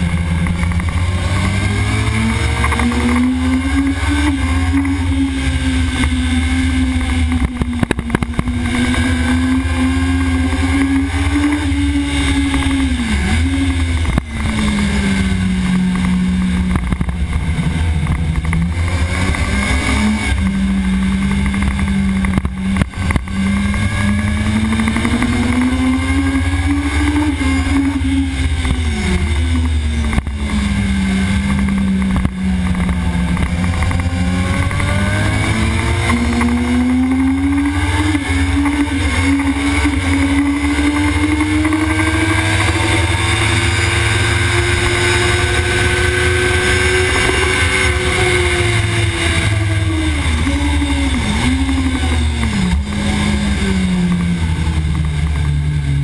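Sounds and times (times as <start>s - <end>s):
motorcycle engine revving: 0.0s - 56.0s
wind rush and rumble: 0.0s - 56.0s.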